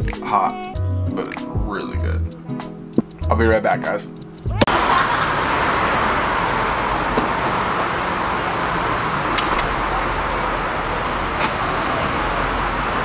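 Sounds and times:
road traffic hiss: 0:04.7 - 0:13.0
key turning in door lock: 0:09.3 - 0:09.8.

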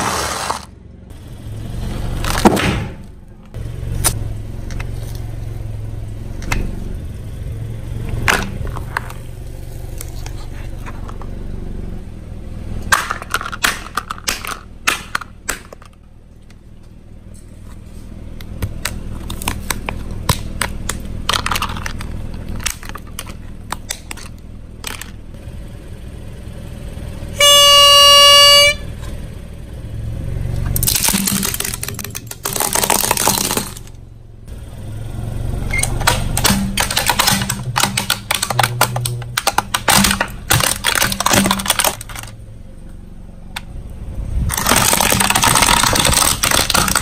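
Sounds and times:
horn beep: 0:27.3 - 0:29.0.

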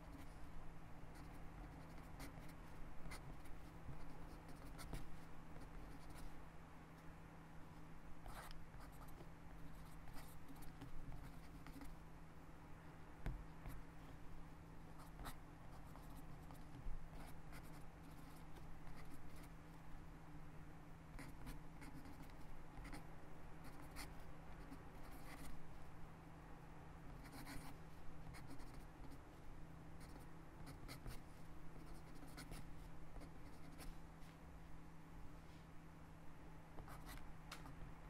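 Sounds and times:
pen scratching on paper: 0:01.2 - 0:06.3, 0:08.3 - 0:11.9, 0:15.0 - 0:19.5, 0:21.1 - 0:23.0, 0:23.6 - 0:25.5, 0:27.2 - 0:29.2, 0:30.0 - 0:31.2, 0:31.8 - 0:33.9.

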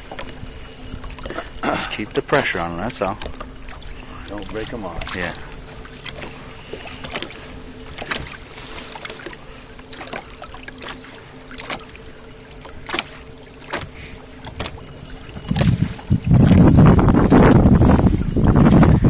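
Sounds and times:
boat engine hum: 0:00.0 - 0:19.0
water knocking and slapping: 0:00.0 - 0:19.0
wind buffeting microphone: 0:14.4 - 0:19.0.

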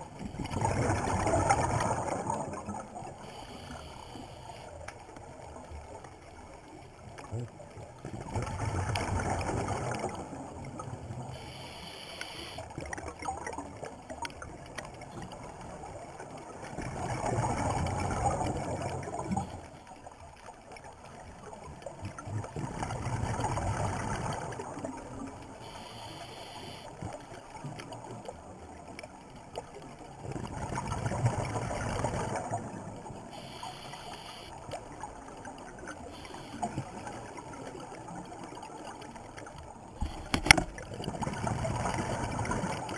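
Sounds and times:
bubbling exhaled air underwater: 0:00.0 - 0:05.6, 0:07.2 - 0:14.7, 0:15.3 - 0:19.8, 0:21.4 - 0:28.2, 0:30.1 - 0:42.9
regulator inhalation hiss: 0:03.2 - 0:04.7, 0:11.4 - 0:12.6, 0:25.7 - 0:26.9, 0:33.4 - 0:34.5, 0:36.2 - 0:36.8.

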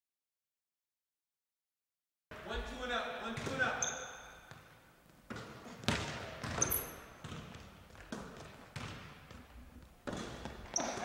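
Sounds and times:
basketballs bouncing on gym floor: 0:02.6 - 0:11.0
high squeak: 0:03.8 - 0:04.4, 0:06.6 - 0:07.1.

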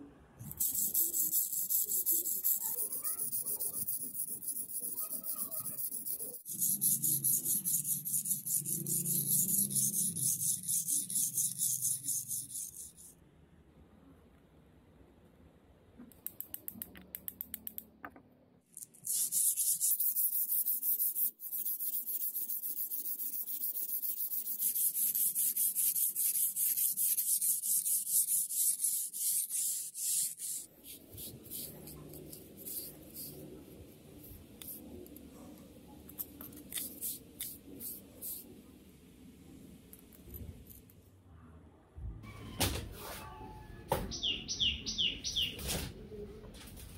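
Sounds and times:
knife scraping on whetstone: 0:00.6 - 0:13.1.

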